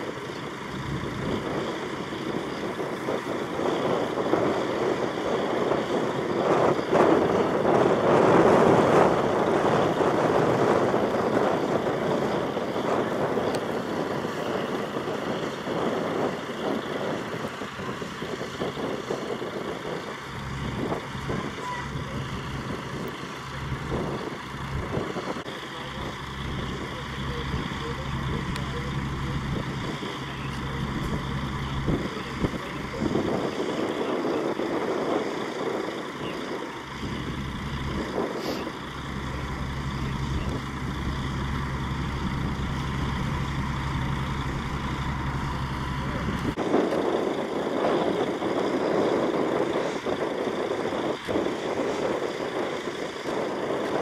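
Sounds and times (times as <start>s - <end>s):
heavy vehicle engine running: 0.0s - 54.0s.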